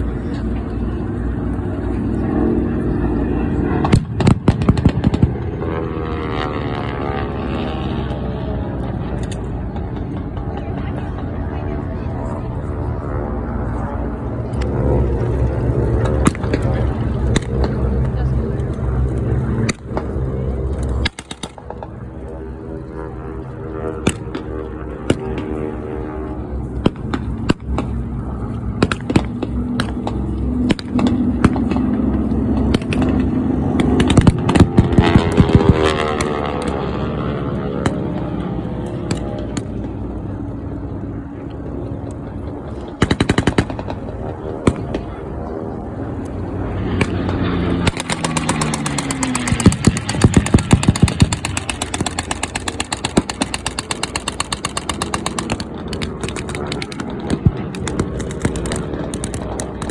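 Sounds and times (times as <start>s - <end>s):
propeller planes passing overhead: 0.0s - 59.9s
gunshots: 3.8s - 5.5s, 28.8s - 31.9s, 33.8s - 36.7s, 43.0s - 44.0s, 47.0s - 59.9s.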